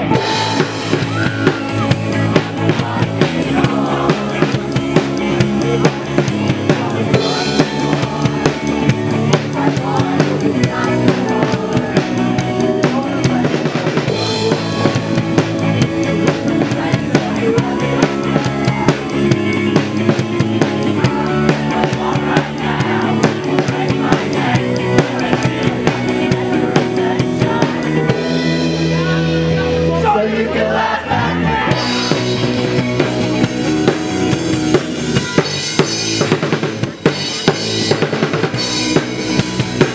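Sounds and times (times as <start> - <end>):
drum kit beat: 0.0 - 30.1, 31.4 - 39.9
electric guitar: 0.0 - 39.9.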